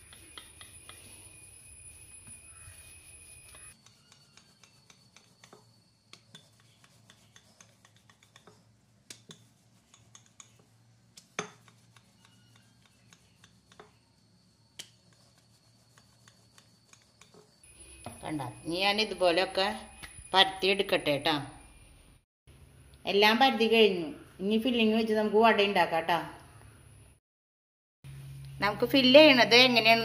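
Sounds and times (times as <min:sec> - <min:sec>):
rolling pin rubbing on dough: 0:00.0 - 0:17.6.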